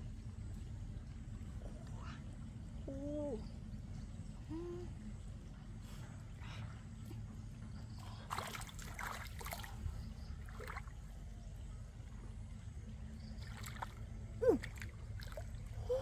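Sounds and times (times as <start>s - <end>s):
river water trickling and sloshing: 0.0s - 16.0s
small splashes: 8.0s - 11.2s, 13.2s - 16.0s.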